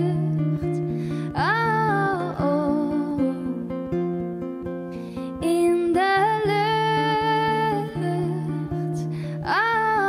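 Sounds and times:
woman singing: 0.0s - 4.3s, 5.2s - 10.0s
acoustic guitar picked: 0.0s - 10.0s
breath in: 0.9s - 1.4s.

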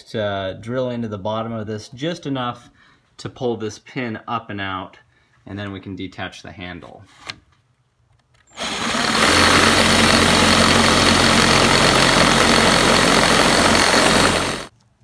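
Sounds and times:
electric drill grinding metal: 8.5s - 14.7s.

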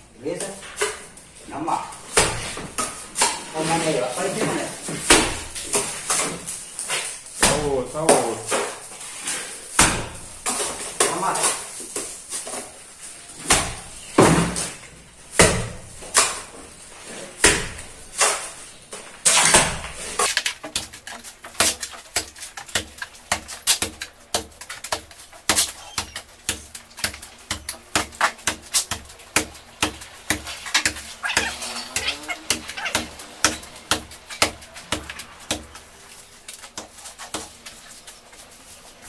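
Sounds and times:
wet mortar slapping on wall: 1.8s - 12.6s, 13.4s - 16.6s, 17.4s - 18.6s, 19.2s - 39.0s.

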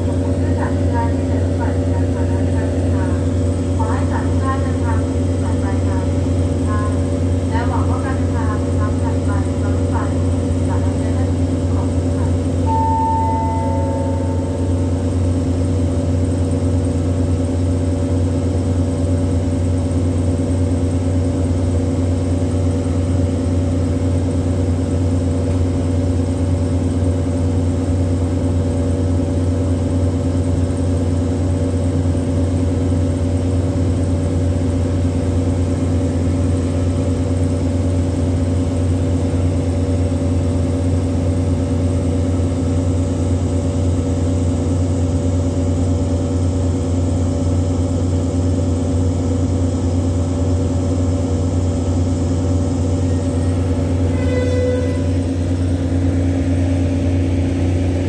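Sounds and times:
diesel train engine idling: 0.0s - 58.0s
short ringing tone: 12.6s - 15.6s, 53.0s - 55.5s.

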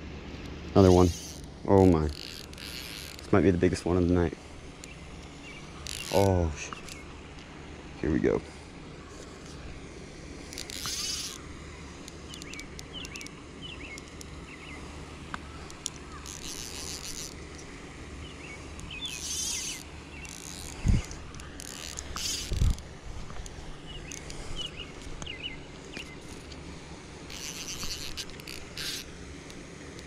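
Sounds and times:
insects buzzing: 0.0s - 30.0s
faint insect chirps: 0.8s - 3.4s, 4.8s - 7.3s, 10.4s - 26.6s, 27.2s - 29.3s.

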